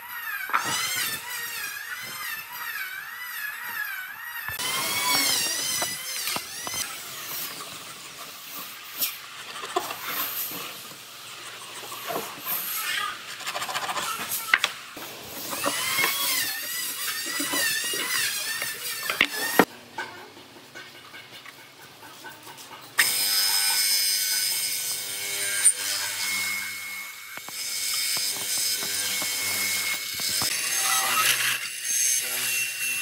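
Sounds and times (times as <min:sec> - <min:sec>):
power tool whining in wood: 0:00.0 - 0:19.7, 0:23.0 - 0:33.0.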